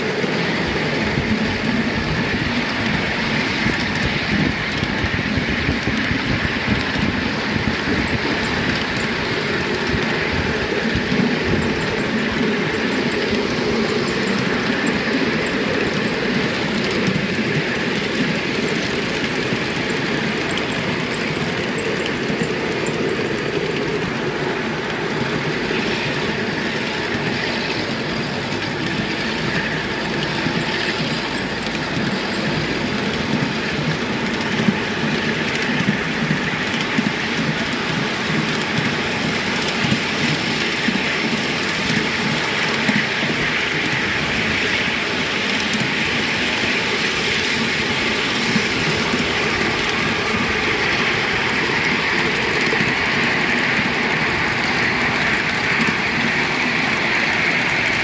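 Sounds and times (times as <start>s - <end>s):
miniature train wheels rumbling: 0.0s - 58.0s.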